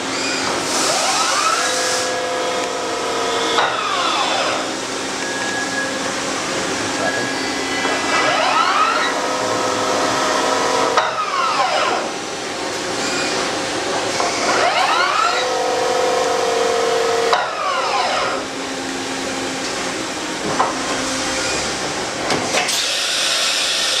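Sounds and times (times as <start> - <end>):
machine motors whining: 0.0 - 24.0.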